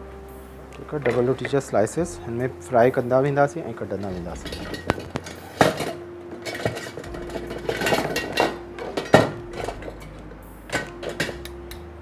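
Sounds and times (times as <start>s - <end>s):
metal utensils clattering: 3.9s - 11.5s.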